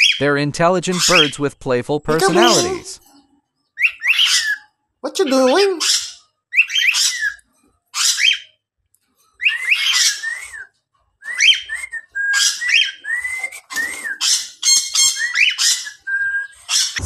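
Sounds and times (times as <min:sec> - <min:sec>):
cockatiel whistling: 0:03.8 - 0:04.6, 0:05.8 - 0:07.4, 0:09.4 - 0:17.0
cockatiel scratchy chatter: 0:16.6 - 0:17.0.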